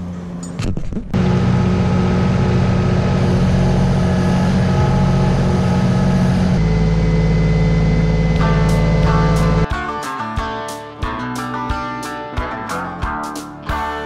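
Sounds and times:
diesel engine running: 0.0s - 9.7s.

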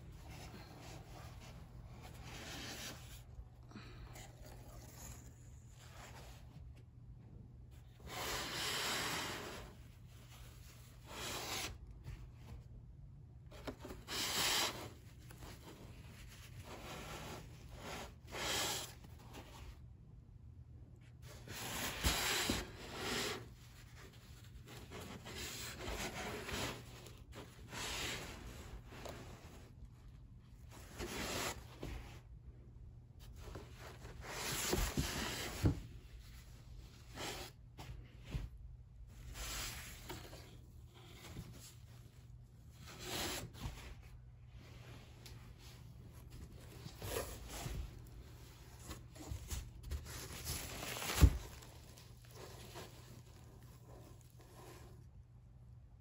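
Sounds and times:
fabric rustling against cardboard: 0.0s - 3.4s, 21.0s - 55.3s.

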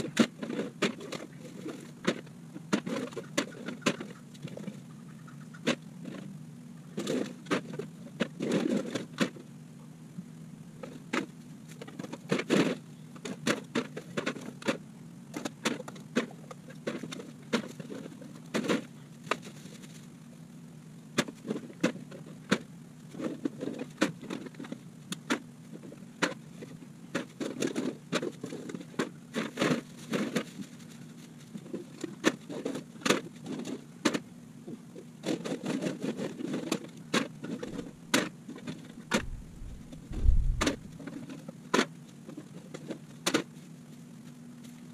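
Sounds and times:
steady low hum: 32.9s - 44.9s
plastic bag crinkling: 39.2s - 40.9s.

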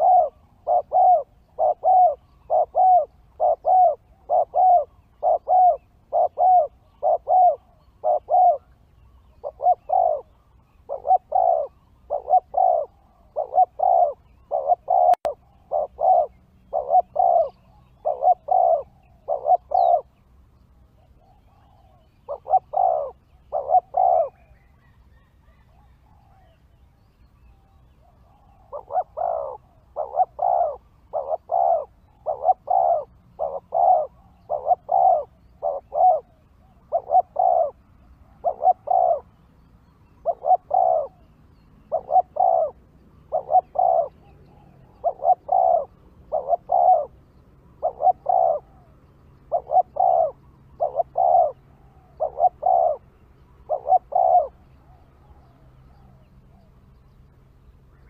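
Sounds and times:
dove cooing: 0.0s - 20.2s, 20.8s - 57.1s.

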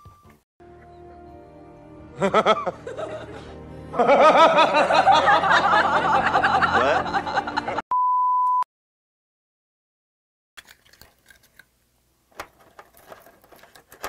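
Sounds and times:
background music: 0.0s - 7.8s
man laughing: 2.2s - 7.8s.

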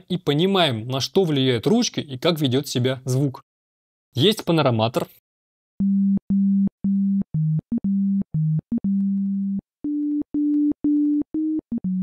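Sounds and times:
sine-wave synthesizer melody: 5.8s - 12.0s.

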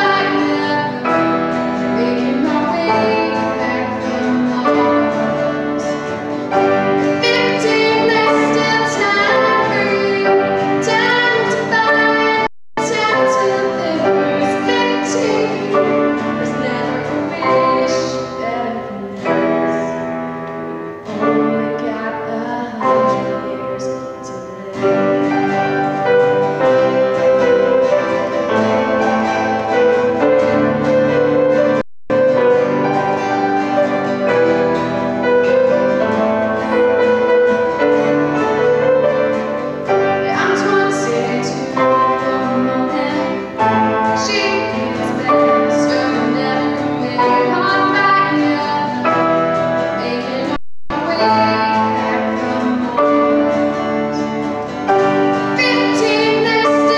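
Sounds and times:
girl singing into a microphone: 0.0s - 6.2s, 7.0s - 20.1s, 21.1s - 25.8s, 40.0s - 56.9s
acoustic guitar: 0.0s - 56.9s
piano: 0.0s - 56.9s.

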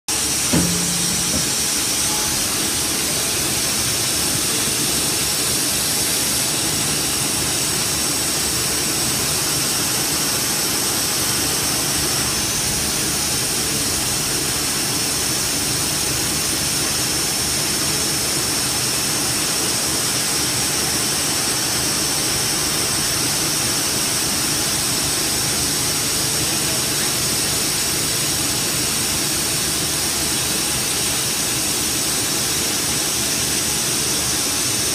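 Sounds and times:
short knock: 0.5s - 2.2s.

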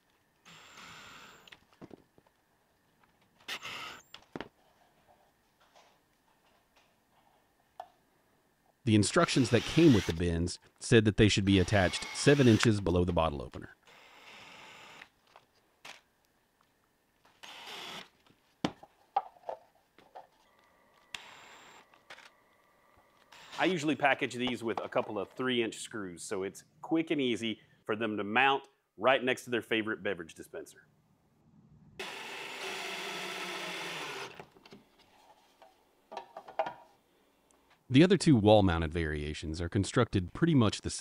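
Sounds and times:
small power tool whirring: 0.4s - 1.5s, 9.4s - 10.2s, 11.7s - 12.7s, 13.8s - 15.1s, 17.4s - 18.1s, 21.0s - 22.3s, 23.2s - 23.6s, 32.0s - 34.5s.

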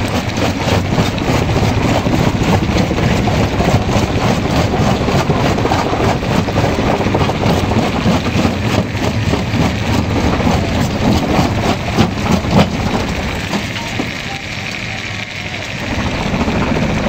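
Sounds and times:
rock crusher rumbling and crunching: 0.0s - 17.0s.

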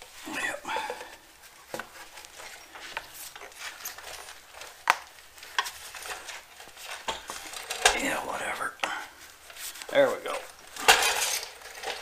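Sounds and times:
rubbing and rustling of rubber: 0.0s - 12.0s
small clicks and knocks: 0.9s - 8.1s.

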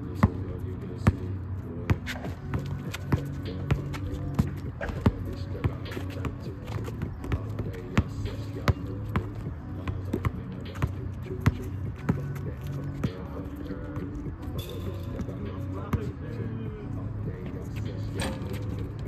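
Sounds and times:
music playing: 0.0s - 19.0s
basketball bouncing: 1.9s - 13.3s.

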